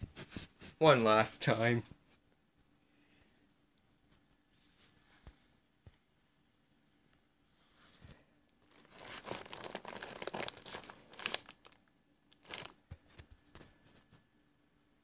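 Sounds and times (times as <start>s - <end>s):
plastic wrappers crinkling: 8.6s - 12.8s.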